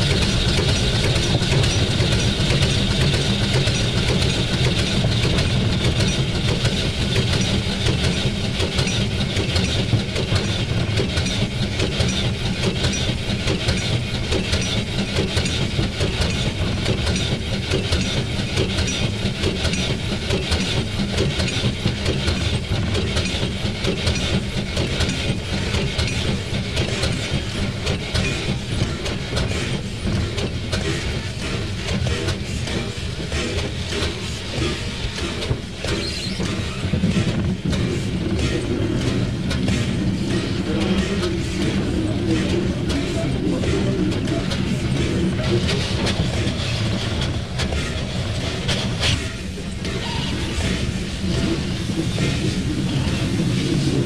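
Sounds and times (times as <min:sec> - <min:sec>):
steam locomotive running: 0:00.0 - 0:54.0.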